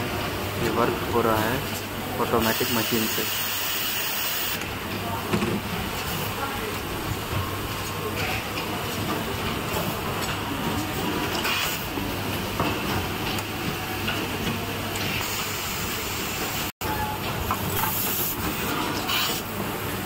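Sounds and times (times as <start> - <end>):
machine mechanical hiss: 2.3 - 4.6, 17.6 - 19.6.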